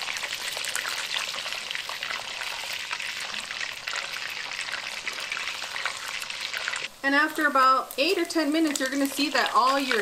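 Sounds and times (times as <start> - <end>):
fat sizzling and crackling in pot: 0.0 - 10.0.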